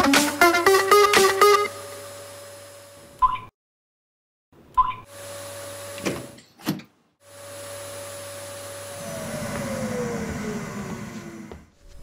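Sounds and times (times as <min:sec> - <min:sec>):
robot vacuum motor hum: 0:07.3 - 0:12.0
falling whine: 0:08.8 - 0:11.7.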